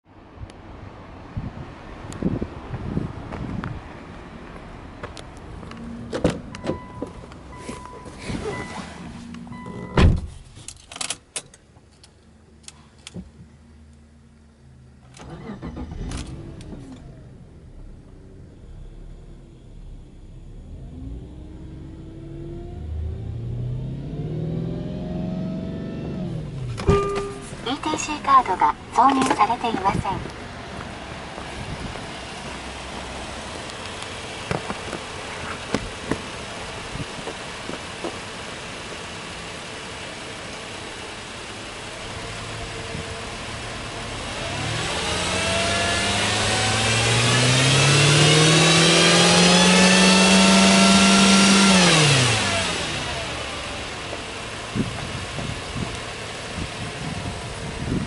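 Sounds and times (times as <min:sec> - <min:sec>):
car engine starting and idling: 0:00.2 - 0:58.0
thud: 0:10.0 - 0:10.5.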